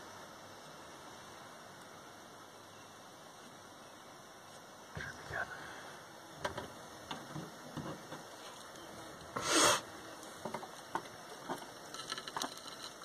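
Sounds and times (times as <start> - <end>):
gas torch flame hissing: 4.9 - 11.9
nasal sniff: 9.4 - 9.8.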